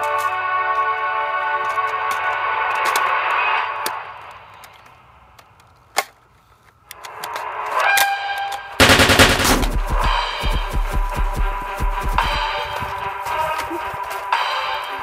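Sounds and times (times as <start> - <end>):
music: 0.0 - 4.8, 6.9 - 15.0
machine-gun fire: 8.8 - 12.6.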